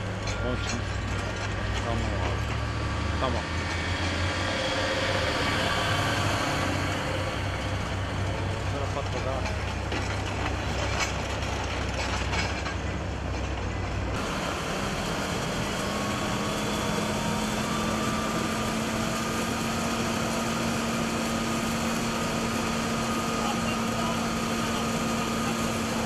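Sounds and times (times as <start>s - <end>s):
deep engine rumble: 0.0s - 26.0s
high-pressure water jet hissing: 14.2s - 26.0s
pump humming: 14.2s - 26.0s.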